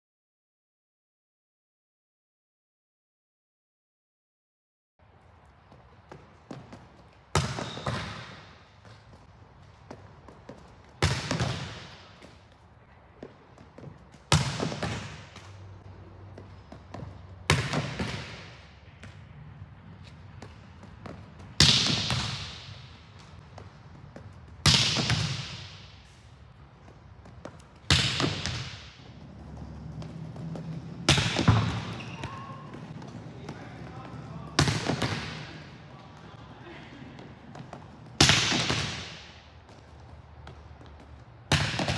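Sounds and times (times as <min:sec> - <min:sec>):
volleyball smacks echoing in gym: 0:06.1 - 0:09.2, 0:09.8 - 0:12.5, 0:13.2 - 0:15.8, 0:16.4 - 0:19.2, 0:20.4 - 0:26.1, 0:26.8 - 0:29.2, 0:30.0 - 0:36.4, 0:37.2 - 0:41.9.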